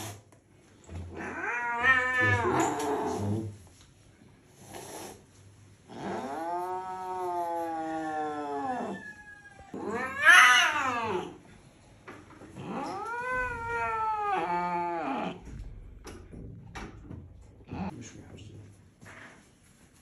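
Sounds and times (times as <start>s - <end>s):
angry cat yowling: 1.1s - 3.2s, 6.0s - 11.4s, 12.6s - 15.4s.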